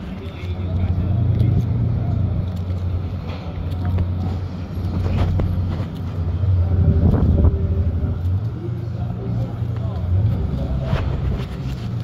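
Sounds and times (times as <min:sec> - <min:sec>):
wind buffeting microphone: 0:04.0 - 0:08.4.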